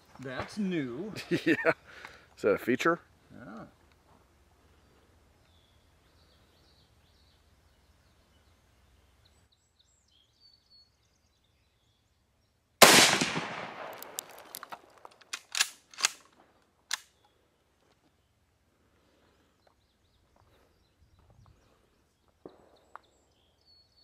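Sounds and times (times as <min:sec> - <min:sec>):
rifle shot echoing: 0:12.8 - 0:14.6
sharp gunshot cracks: 0:12.8 - 0:14.6.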